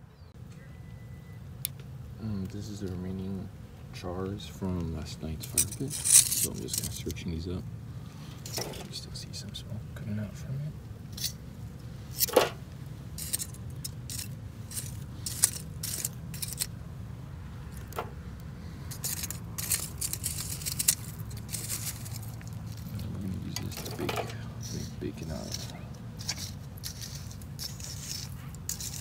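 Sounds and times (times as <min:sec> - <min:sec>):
metal tongs clinking on grill tray: 0:05.4 - 0:07.2, 0:23.5 - 0:29.0.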